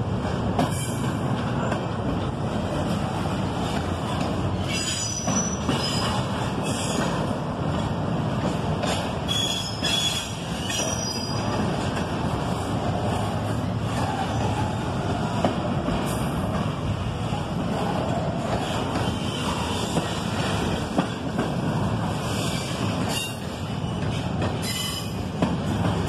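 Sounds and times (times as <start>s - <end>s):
train wheels rumbling on rail: 0.0s - 26.0s
high-pitched wheel squeals: 4.6s - 7.0s, 9.3s - 11.4s.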